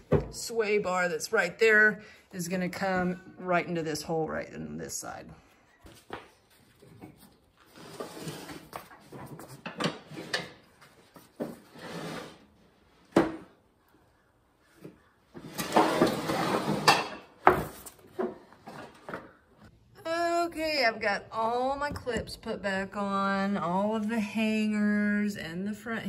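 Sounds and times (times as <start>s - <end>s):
mower deck scraping concrete: 15.4s - 17.7s.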